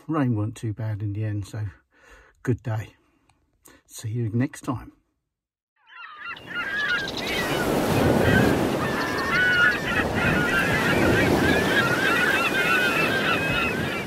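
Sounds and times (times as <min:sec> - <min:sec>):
geese honking: 0:05.9 - 0:14.0.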